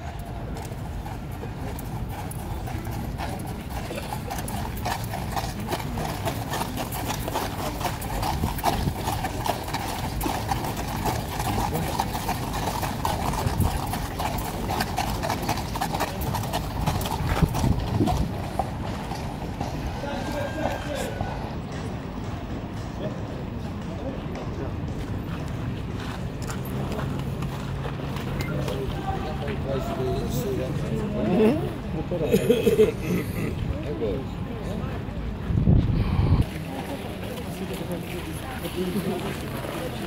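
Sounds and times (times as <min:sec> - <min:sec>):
horse hooves on gravel: 0:00.0 - 0:21.0.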